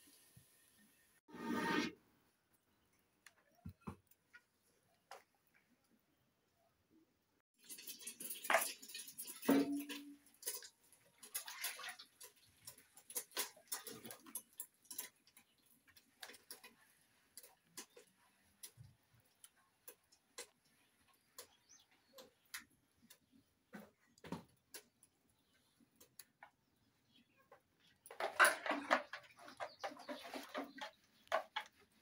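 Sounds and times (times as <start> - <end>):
knocks and scraping: 27.5 - 32.0.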